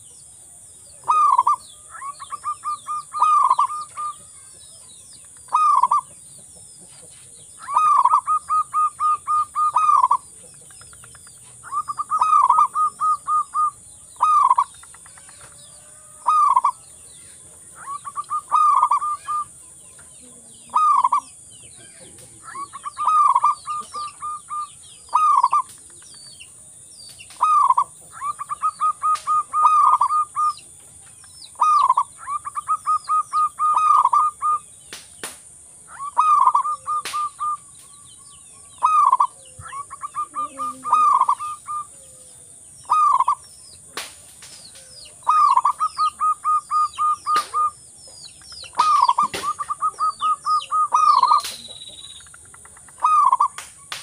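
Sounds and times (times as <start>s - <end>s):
small birds chirping: 0.0s - 54.0s
dove cooing: 1.0s - 4.5s, 7.6s - 10.3s, 11.5s - 16.8s, 17.7s - 19.6s, 20.2s - 25.8s, 27.4s - 30.6s, 31.6s - 34.6s, 35.9s - 37.7s, 38.7s - 43.4s, 44.8s - 47.8s, 48.6s - 53.6s.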